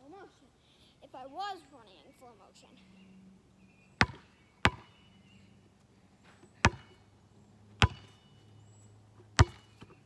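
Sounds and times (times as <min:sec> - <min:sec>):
basketball bouncing on asphalt: 0:04.0 - 0:05.0, 0:06.6 - 0:07.0, 0:07.7 - 0:08.3, 0:09.2 - 0:10.0.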